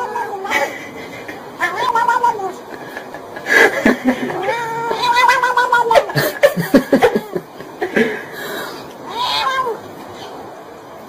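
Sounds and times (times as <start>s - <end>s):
cat meowing: 0.0s - 0.6s, 1.6s - 2.6s, 4.3s - 6.1s, 9.0s - 10.4s
person laughing: 0.4s - 1.8s, 2.5s - 5.0s, 5.7s - 8.4s.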